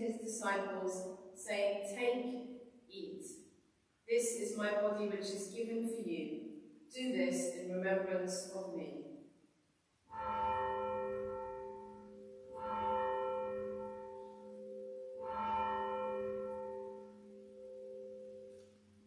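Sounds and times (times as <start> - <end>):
church bell ringing: 10.1 - 19.0.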